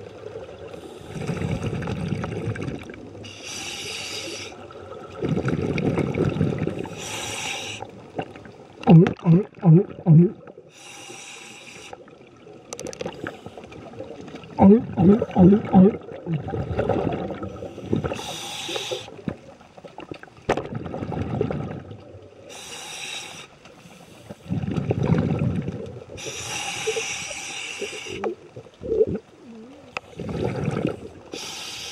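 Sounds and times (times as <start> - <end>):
bubbly regulator exhalations: 1.0 - 3.0, 5.1 - 7.5, 8.2 - 10.6, 14.0 - 19.1, 24.5 - 27.2, 27.8 - 31.5.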